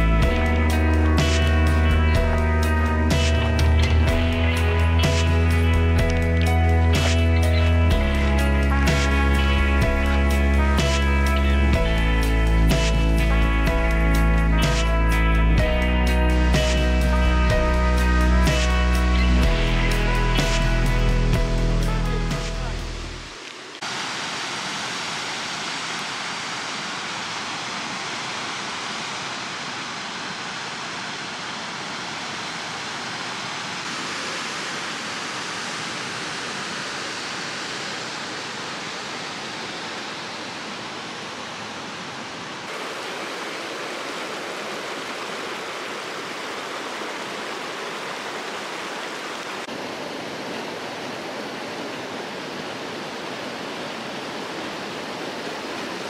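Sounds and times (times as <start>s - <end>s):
small waterfall rushing: 0.0s - 56.0s
stream running over rocks: 23.3s - 56.0s.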